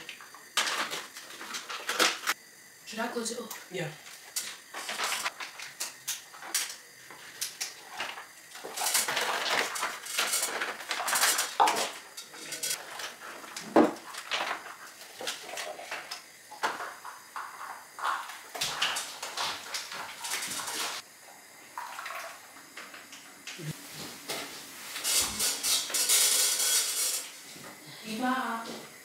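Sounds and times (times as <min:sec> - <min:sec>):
plastic pouches rustling: 0:00.6 - 0:02.4, 0:04.4 - 0:16.0, 0:17.4 - 0:21.0.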